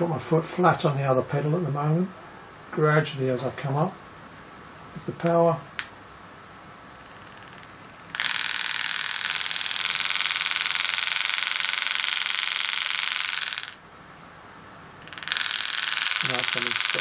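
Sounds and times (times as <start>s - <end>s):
pneumatic engraver hammering buzz: 8.1s - 13.8s, 15.0s - 17.0s.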